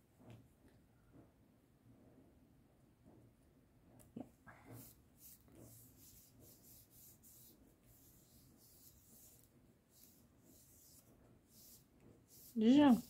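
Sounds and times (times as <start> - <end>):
hands rubbing paper: 4.7 - 13.0.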